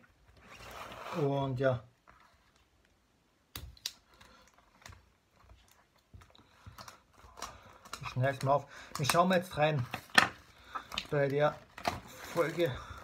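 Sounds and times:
box packaging clicks and taps: 0:06.0 - 0:12.0.

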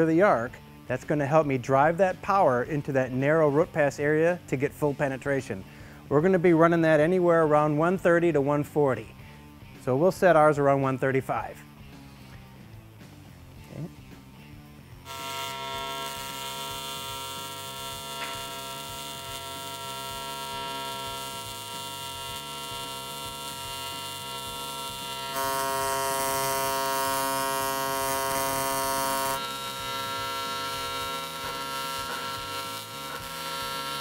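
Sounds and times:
welding arc buzzing: 0:15.0 - 0:34.0.

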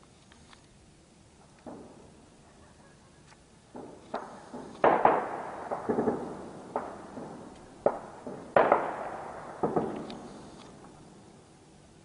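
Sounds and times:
gunshots with ringing echo: 0:01.7 - 0:02.2, 0:03.7 - 0:11.4.

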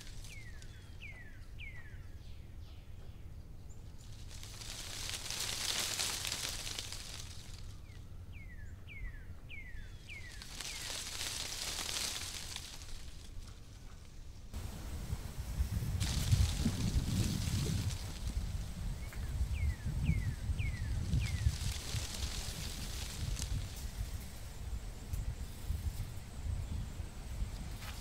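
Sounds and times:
high hiss: 0:04.1 - 0:07.8, 0:10.0 - 0:13.4, 0:14.6 - 0:28.0
steady low rumble: 0:10.4 - 0:27.6.

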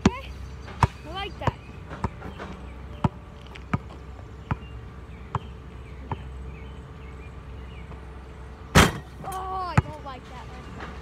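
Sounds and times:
basketball bouncing: 0:00.8 - 0:06.3.

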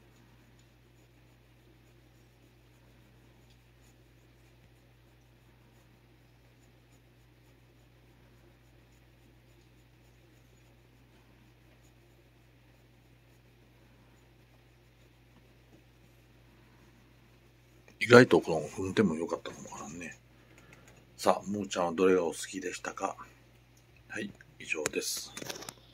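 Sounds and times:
glove rubbing cat fur: 0:00.0 - 0:20.2.

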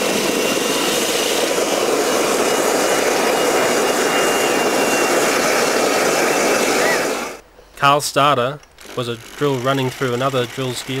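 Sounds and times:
jet engine rushing: 0:00.0 - 0:07.4
faint high whistle: 0:03.5 - 0:07.4.

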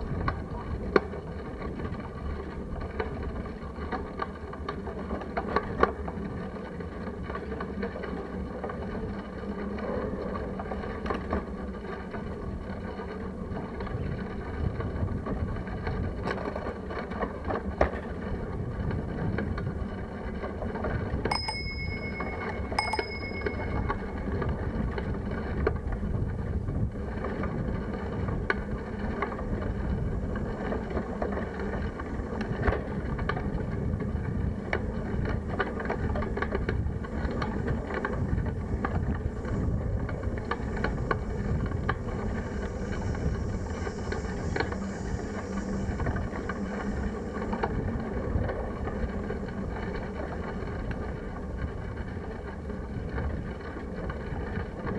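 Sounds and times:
bike rattles and clicks: 0:00.0 - 0:54.9
wind and tyres rumbling on road: 0:00.0 - 0:54.9
bicycle bell ringing: 0:21.3 - 0:24.5.

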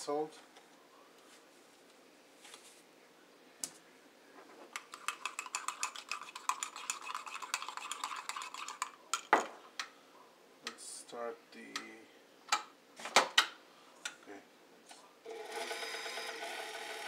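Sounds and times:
spoon clinking in a mug: 0:04.8 - 0:09.3.

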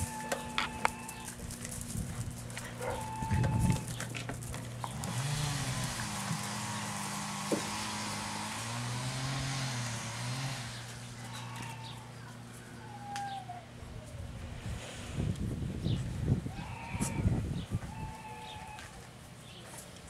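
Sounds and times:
motor vehicle passing by: 0:04.7 - 0:12.4.

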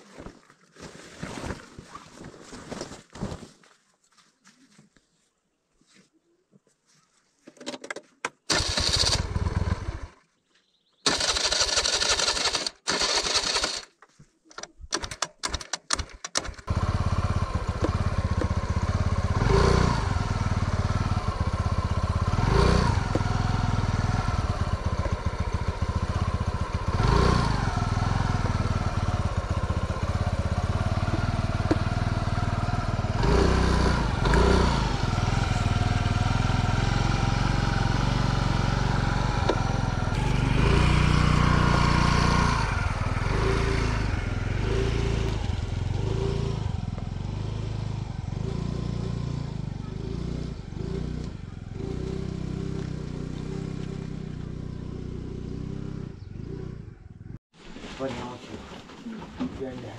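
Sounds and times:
scooter engine idling and revving: 0:08.4 - 0:10.2, 0:10.9 - 0:13.9, 0:15.0 - 0:57.5.

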